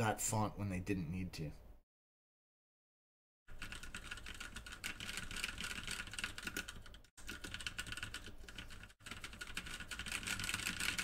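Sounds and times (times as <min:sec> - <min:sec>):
mechanical keyboard typing: 0:03.5 - 0:11.0.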